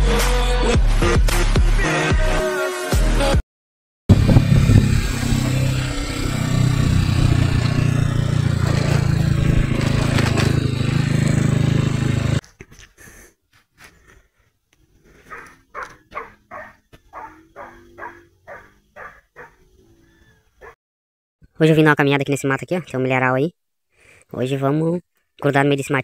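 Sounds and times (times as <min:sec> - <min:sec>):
motorcycle engine running: 0:04.1 - 0:12.4
road and wind noise: 0:04.1 - 0:12.4.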